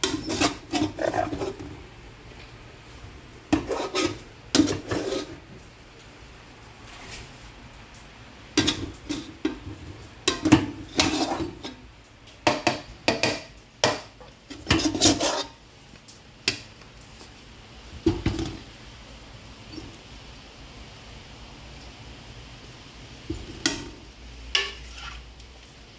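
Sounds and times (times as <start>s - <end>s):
plate knocking on metal pot: 12.4s - 14.2s.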